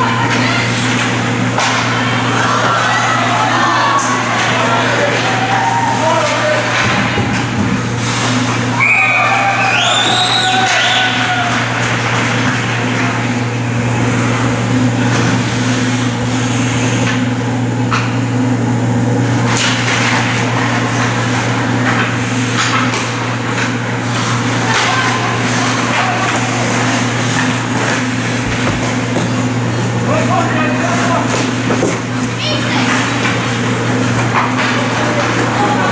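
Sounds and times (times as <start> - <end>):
spectator chatter: 0.0 - 7.9, 24.2 - 28.4, 29.0 - 35.9
hockey sticks and puck clacking: 0.2 - 13.3, 19.5 - 29.4, 30.1 - 35.9
steady low hum: 11.0 - 35.9.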